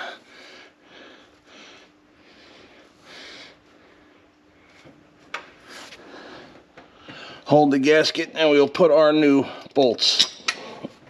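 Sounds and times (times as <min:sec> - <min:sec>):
man breathing quietly: 0:00.0 - 0:07.5
faint steady hum: 0:00.0 - 0:11.0.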